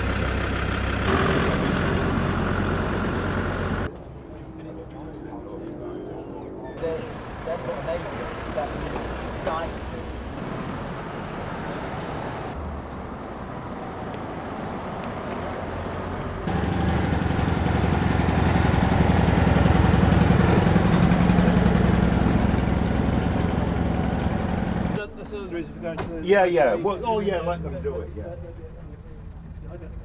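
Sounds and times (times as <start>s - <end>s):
van engine driving past: 0.0s - 3.9s, 6.8s - 25.0s
quieter vehicle engine: 0.0s - 30.0s.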